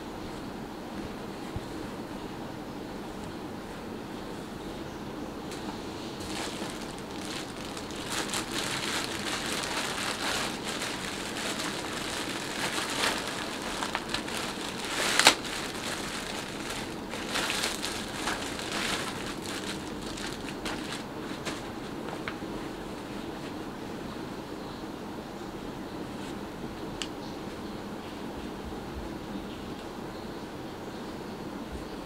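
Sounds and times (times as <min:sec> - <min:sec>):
steady background hum: 0:00.0 - 0:32.0
plastic bag crinkling: 0:06.2 - 0:21.7.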